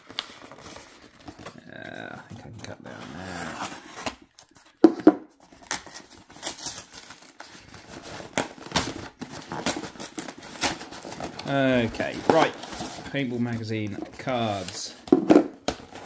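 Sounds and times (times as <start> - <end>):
cardboard tearing by hand: 0.0 - 4.5, 5.4 - 13.2.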